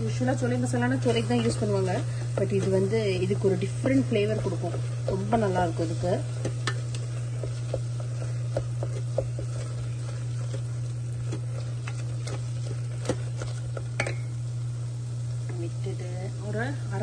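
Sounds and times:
steady low hum: 0.0 - 17.0
spatula scraping metal pot: 0.9 - 13.8.

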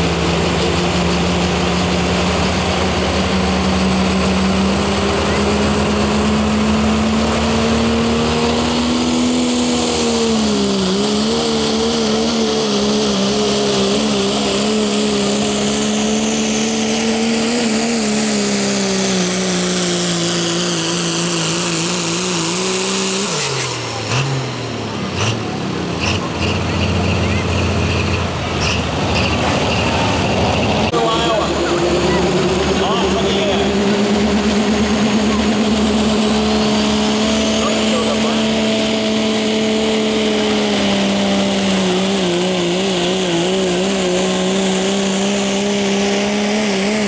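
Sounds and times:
diesel engine at full throttle: 0.0 - 47.0.

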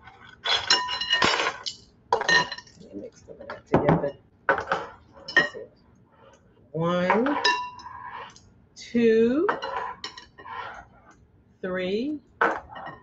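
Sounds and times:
metal spoons clinking on dishes: 0.4 - 2.9, 4.5 - 5.7, 6.9 - 8.4, 9.5 - 10.4, 12.6 - 13.0.

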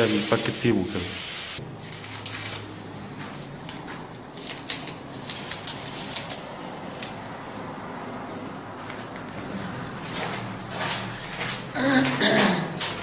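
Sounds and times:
masking tape peeling: 1.8 - 7.2.

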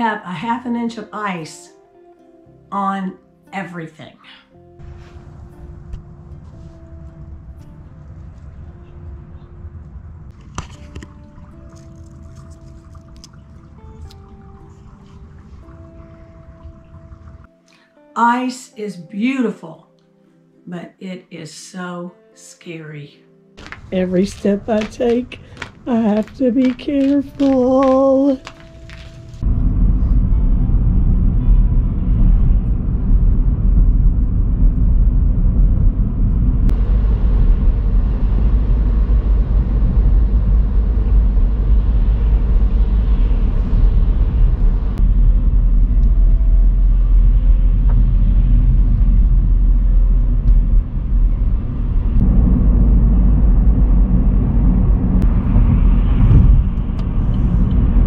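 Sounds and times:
car tyre and engine rumble: 4.8 - 17.5, 28.5 - 58.0.

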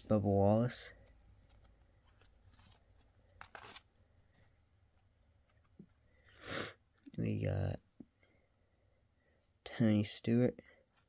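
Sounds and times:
trading cards rustling and clicking: 1.0 - 6.0.

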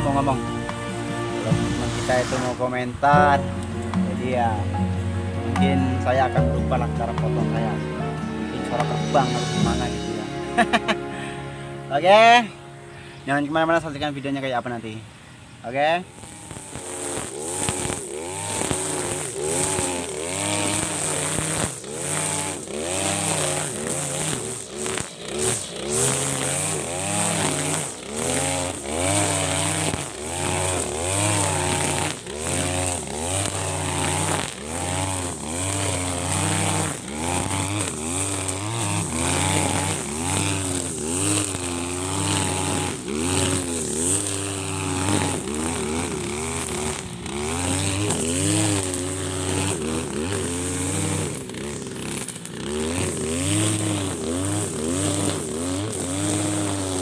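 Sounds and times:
nylon line cutting grass: 0.0 - 15.0, 15.7 - 57.0
brush cutter engine running: 0.0 - 57.0.

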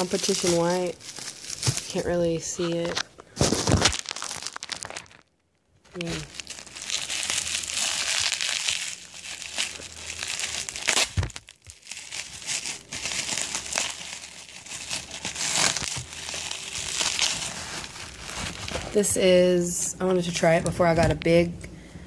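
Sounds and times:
bubble wrap crinkling: 0.0 - 19.6.

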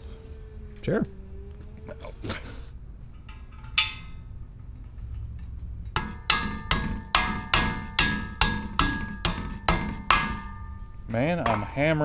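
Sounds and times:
mallet striking metal handlebars: 3.2 - 4.3, 5.9 - 12.0.

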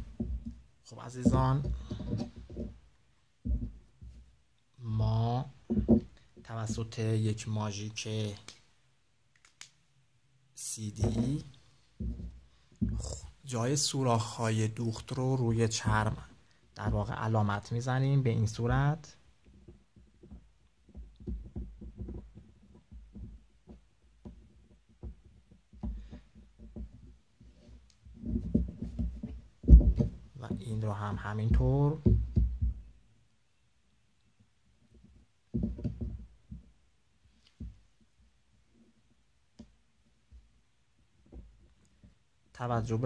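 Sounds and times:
leather panels knocking and rubbing: 0.0 - 4.4, 5.6 - 6.8, 10.9 - 13.4, 15.0 - 17.4, 18.5 - 33.0, 34.8 - 38.1, 41.2 - 42.2
marker tapping on leather: 12.0 - 13.2, 19.5 - 32.9.

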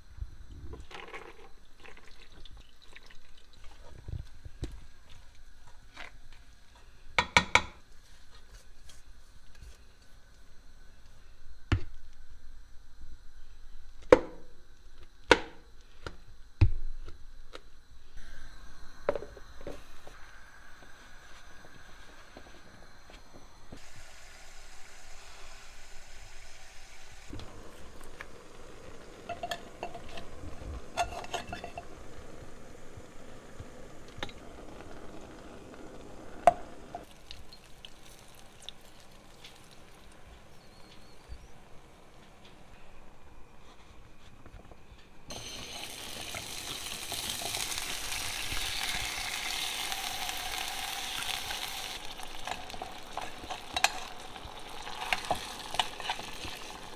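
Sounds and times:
oil sizzling under onions: 18.2 - 41.3, 45.3 - 56.9
metal spoon scraping saucepan: 30.9 - 31.9
spoon and colander clinking on pot: 31.0 - 31.9, 52.4 - 54.3.

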